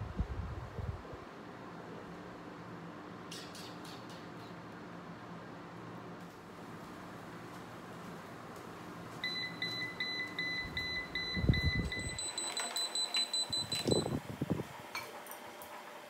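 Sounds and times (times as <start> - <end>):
air fryer fan hum: 0.0 - 3.3, 4.6 - 16.0.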